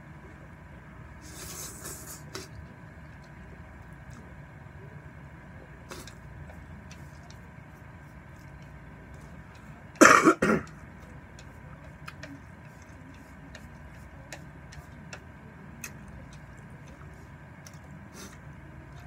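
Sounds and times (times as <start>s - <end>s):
man coughing: 10.0s - 10.7s
chopsticks clicking on a plate: 10.7s - 17.0s.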